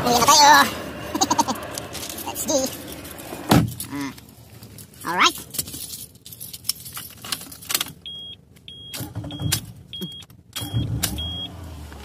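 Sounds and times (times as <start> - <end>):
clicks and rustling handling noises: 1.6 - 8.7.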